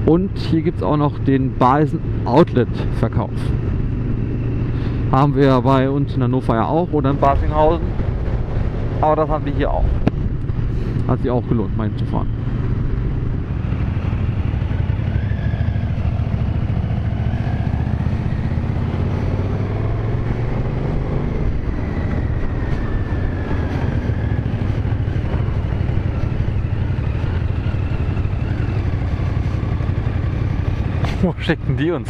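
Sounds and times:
motorcycle engine running: 0:00.0 - 0:32.0
wind rush on microphone: 0:06.8 - 0:11.1.

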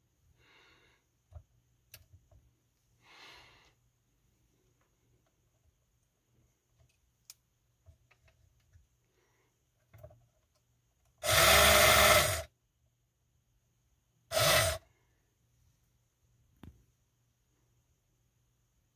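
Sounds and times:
small electric motor running: 0:11.2 - 0:12.5, 0:14.3 - 0:14.8.

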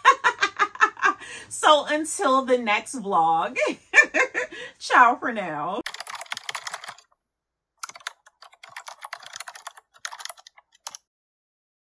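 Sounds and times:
keyboard typing: 0:05.8 - 0:07.2, 0:07.8 - 0:11.1.

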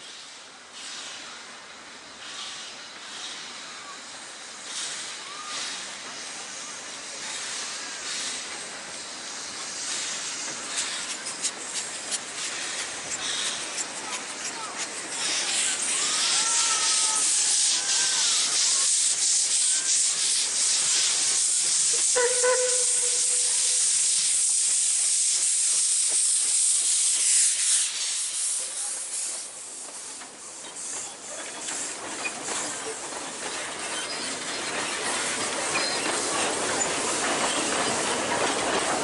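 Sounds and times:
steam locomotive hissing: 0:00.0 - 0:39.0
steam whistle toot: 0:21.9 - 0:24.1
carriage wheels on rails: 0:29.8 - 0:39.0.

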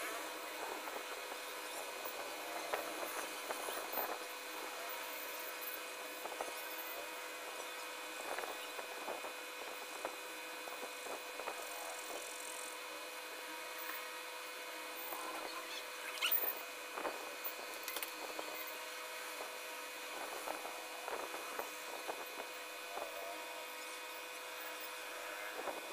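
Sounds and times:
background hum: 0:00.0 - 0:25.9.

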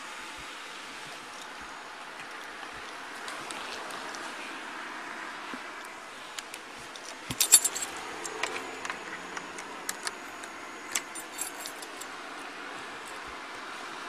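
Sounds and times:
keys jangling: 0:07.3 - 0:08.4, 0:10.9 - 0:12.1.

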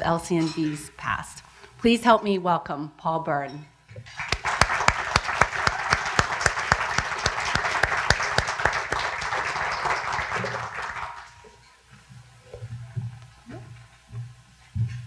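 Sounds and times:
audience applauding: 0:04.1 - 0:11.6
close sharp hand claps: 0:04.1 - 0:11.6.

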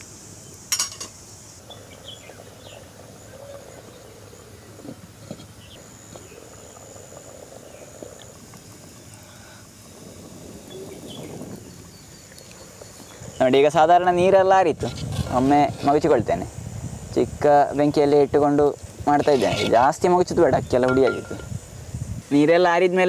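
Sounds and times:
insects chirring: 0:00.0 - 0:23.0
rice bubbling in a pot: 0:00.4 - 0:23.0
sharp clink: 0:20.9 - 0:21.5.

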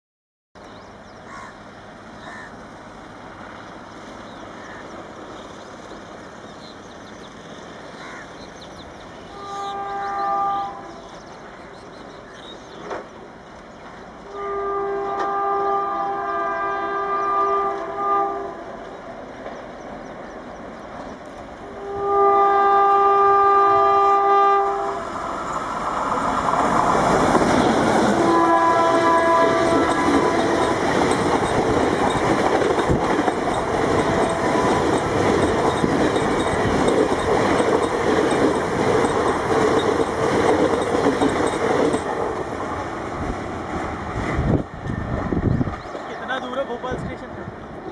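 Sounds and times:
train running noise: 0:00.6 - 0:47.9
twin-tone train horn blast: 0:09.2 - 0:11.2, 0:14.2 - 0:18.8, 0:21.6 - 0:25.2, 0:28.1 - 0:31.0, 0:34.0 - 0:35.0.

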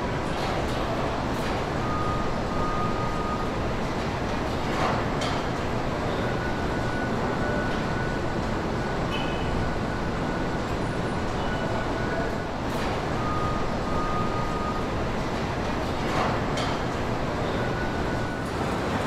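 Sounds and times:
faint machine whines: 0:01.1 - 0:03.9, 0:05.8 - 0:19.0
assembly line machinery noise: 0:09.0 - 0:19.0.

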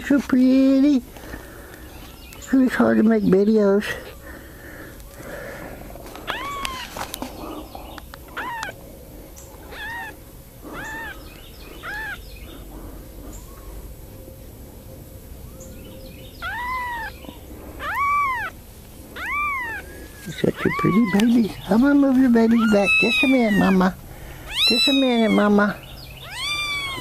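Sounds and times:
kitten mewing: 0:06.2 - 0:06.9, 0:08.4 - 0:08.8, 0:09.7 - 0:11.2, 0:11.8 - 0:12.2, 0:16.4 - 0:18.6, 0:19.2 - 0:21.7, 0:22.3 - 0:27.0.

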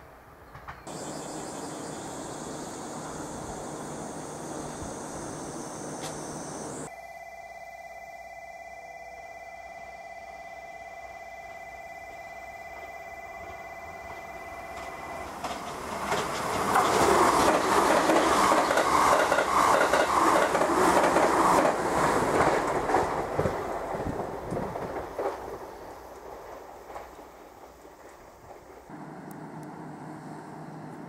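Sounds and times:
train passing at speed: 0:00.0 - 0:31.0
wheels beating over rail joints: 0:12.8 - 0:31.0.

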